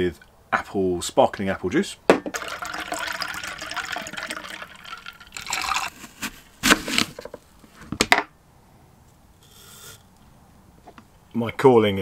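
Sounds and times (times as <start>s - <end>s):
juice pouring into glass: 2.3s - 6.3s.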